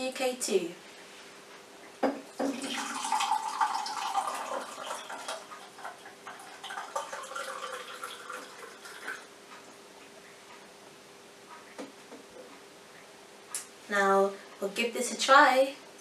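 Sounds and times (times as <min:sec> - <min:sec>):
smoothie pouring into a glass: 0:02.4 - 0:09.3.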